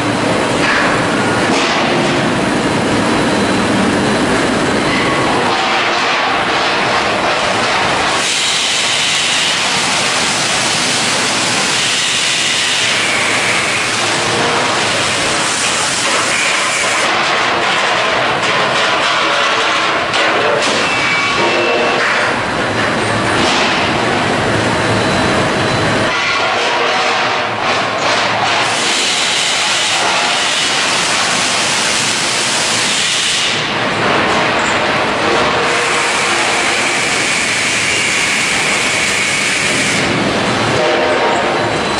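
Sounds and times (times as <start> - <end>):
low mechanical rumble: 0.0 - 8.2
hissing rumble of machinery: 0.0 - 41.9
steam hissing: 7.8 - 17.1, 28.6 - 33.8, 35.6 - 41.9.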